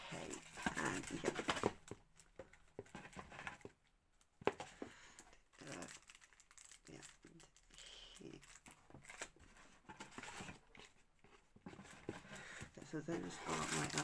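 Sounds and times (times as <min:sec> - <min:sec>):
paper packaging crinkling: 0:00.1 - 0:02.3, 0:05.5 - 0:09.4, 0:11.7 - 0:14.0.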